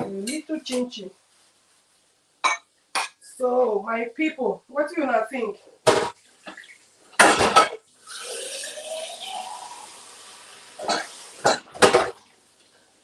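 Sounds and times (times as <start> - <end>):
tap water running: 7.9 - 12.4.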